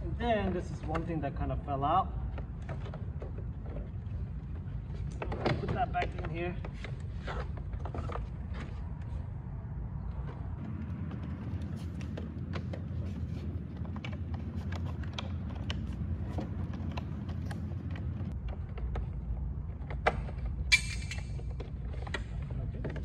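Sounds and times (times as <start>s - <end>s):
low background hum: 0.0s - 23.0s.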